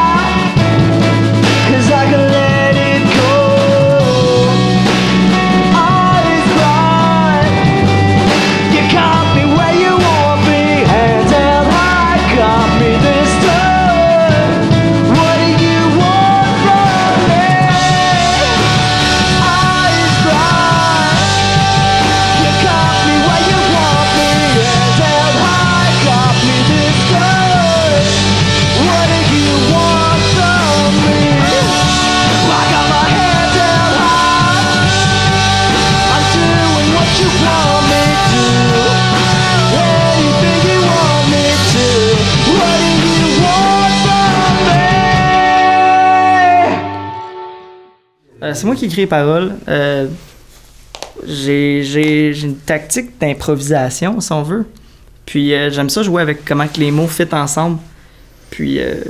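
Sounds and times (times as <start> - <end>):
man singing: 0.0 - 0.8, 1.4 - 47.3
drums: 0.0 - 47.6, 48.3 - 59.0
electric guitar: 0.0 - 48.0
bass guitar: 0.0 - 50.4.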